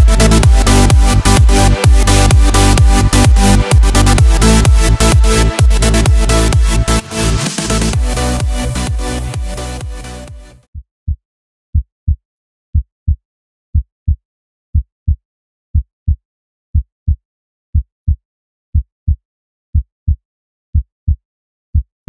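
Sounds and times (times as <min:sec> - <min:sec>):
heartbeat thumps: 0:00.0 - 0:10.4.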